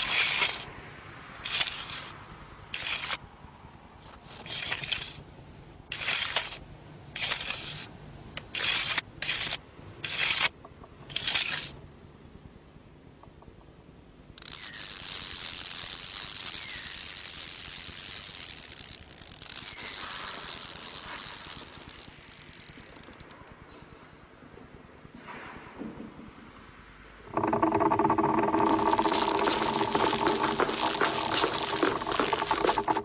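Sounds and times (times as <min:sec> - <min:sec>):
steady hiss: 0:14.9 - 0:23.2.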